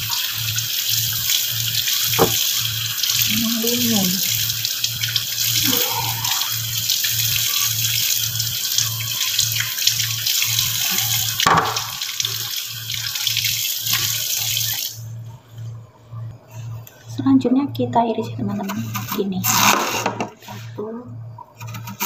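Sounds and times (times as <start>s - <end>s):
tap water running: 0.0s - 15.1s
knock: 2.2s - 2.4s.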